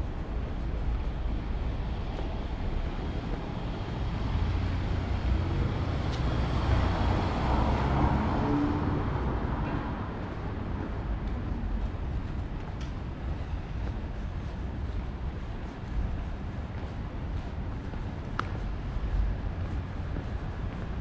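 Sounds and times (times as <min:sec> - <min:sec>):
tyres on wet road: 0:01.4 - 0:11.8
vehicle passing: 0:04.4 - 0:10.3.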